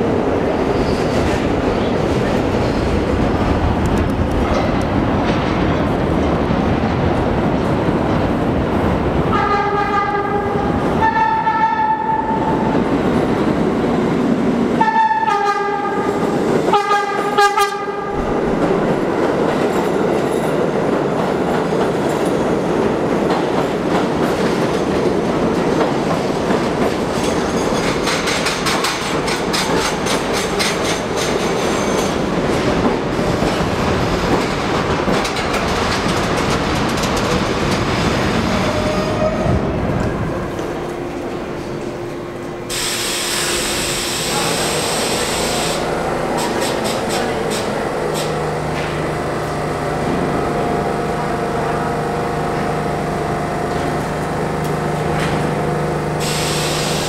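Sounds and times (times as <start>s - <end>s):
train rumbling into station: 0.0s - 57.0s
subway train whistle blasts: 9.3s - 12.5s, 14.8s - 18.1s, 42.7s - 46.5s, 56.2s - 57.0s.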